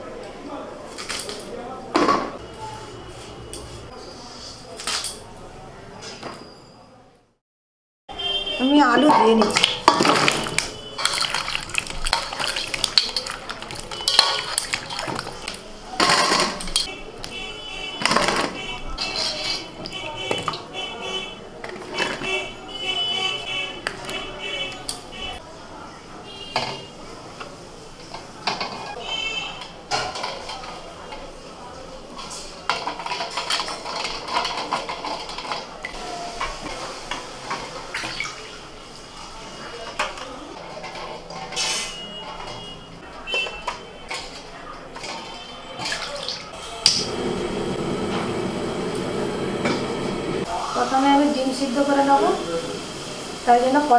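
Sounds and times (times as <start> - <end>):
water splashing in steel bowl: 9.2 - 16.9, 36.7 - 38.6, 43.8 - 47.1
water splashing and swishing: 9.6 - 15.5.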